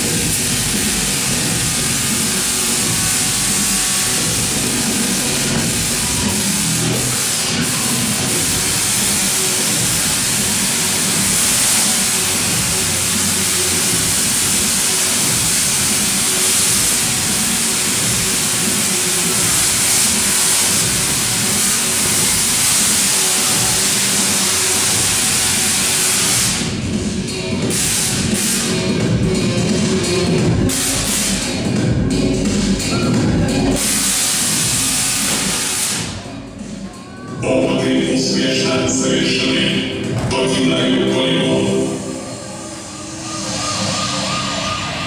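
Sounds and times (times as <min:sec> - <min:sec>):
tesla coil crackling discharge: 0:00.0 - 0:31.7, 0:32.7 - 0:36.2.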